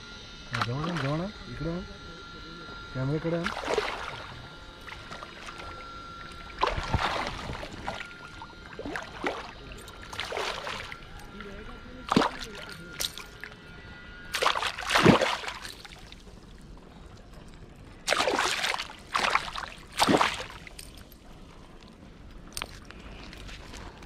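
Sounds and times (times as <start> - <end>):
fish splashing in water: 3.4 - 11.0, 12.1 - 12.7, 14.3 - 16.2, 18.1 - 20.8.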